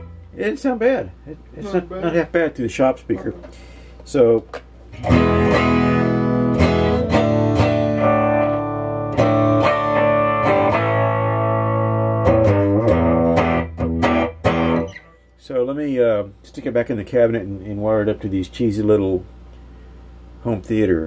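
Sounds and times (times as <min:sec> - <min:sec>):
electric guitar strumming chords: 0:00.0 - 0:00.5, 0:04.9 - 0:15.2.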